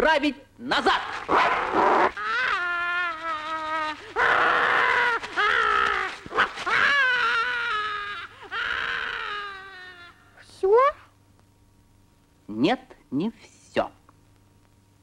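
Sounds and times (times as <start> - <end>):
cartoon voices wailing: 0.9 - 10.2.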